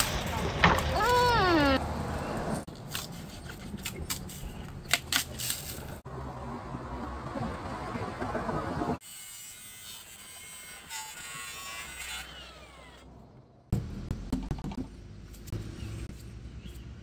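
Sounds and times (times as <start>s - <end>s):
angle grinder cutting sheet steel: 9.0s - 13.1s.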